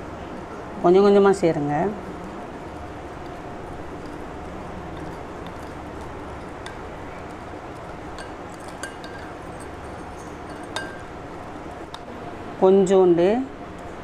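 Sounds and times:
steady background hum: 0:00.0 - 0:14.0
spoon stirring wet mixture: 0:02.1 - 0:12.1
spoon clinking against glass: 0:03.2 - 0:12.0.

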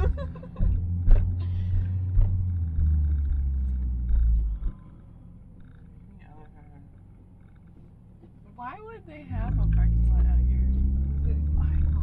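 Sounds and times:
knocks and bumps: 0:00.0 - 0:06.0, 0:09.4 - 0:12.0
car cabin engine rumble: 0:00.0 - 0:12.0.

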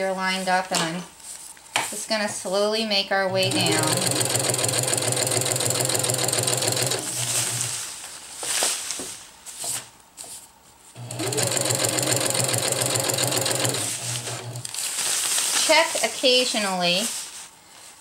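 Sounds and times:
sewing machine stitching: 0:03.3 - 0:07.8, 0:11.0 - 0:14.7
fabric rustling: 0:06.4 - 0:10.9, 0:13.4 - 0:18.0.

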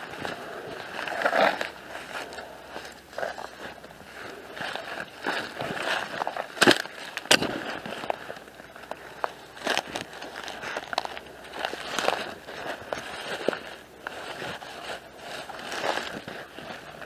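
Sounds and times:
footsteps through dry leaves: 0:00.0 - 0:17.0
twigs snapping: 0:04.6 - 0:17.0.

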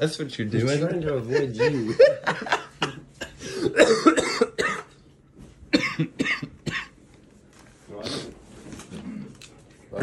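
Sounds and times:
person coughing: 0:02.8 - 0:05.0, 0:05.7 - 0:07.0.

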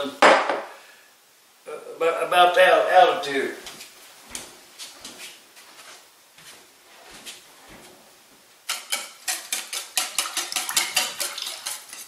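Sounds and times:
batter whisked in a bowl: 0:08.6 - 0:12.0.

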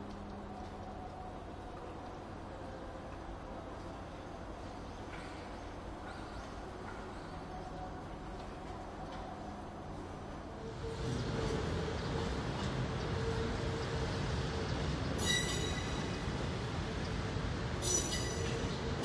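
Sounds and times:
train wheels rumbling on rails: 0:00.0 - 0:19.0
high-pitched wheel squeals: 0:15.2 - 0:16.2, 0:17.8 - 0:18.7.

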